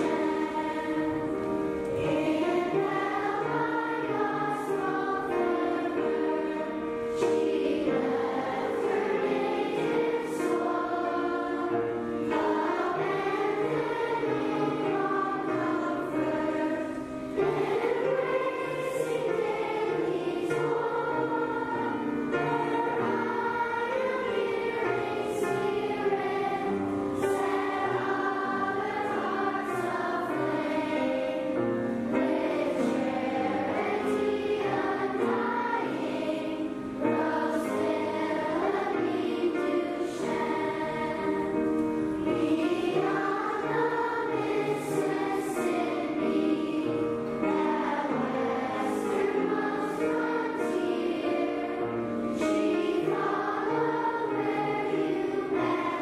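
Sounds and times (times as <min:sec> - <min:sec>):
choir singing: 0:00.0 - 0:56.0.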